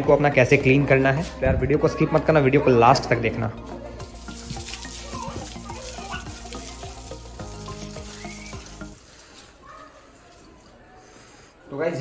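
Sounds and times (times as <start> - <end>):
hose water spraying on motorcycle: 3.8 - 9.6.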